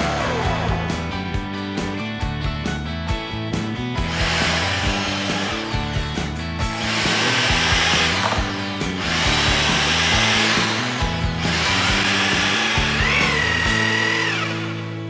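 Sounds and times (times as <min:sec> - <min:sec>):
background music: 0:00.0 - 0:15.0
electric drill boring into wood: 0:04.0 - 0:15.0.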